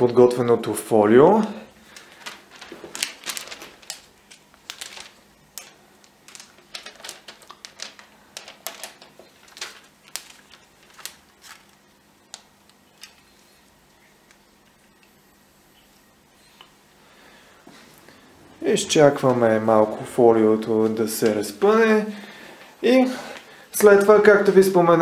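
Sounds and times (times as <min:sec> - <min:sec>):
plastic film crackling: 0:01.8 - 0:16.1.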